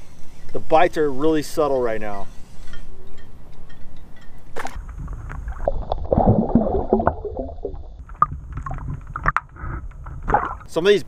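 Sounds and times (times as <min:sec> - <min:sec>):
water splashing and gurgling: 0:04.6 - 0:10.8
wind rumble on microphone: 0:04.7 - 0:10.7.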